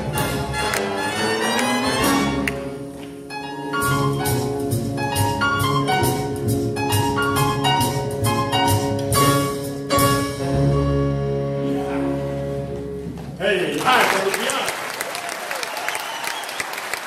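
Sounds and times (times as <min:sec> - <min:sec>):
big band with strings playing swing: 0:00.0 - 0:13.8.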